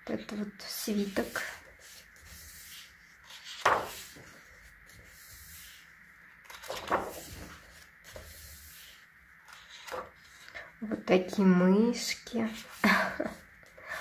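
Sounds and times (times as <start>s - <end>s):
paper rustling: 0.8s - 10.7s
paper page flips: 1.0s - 10.6s.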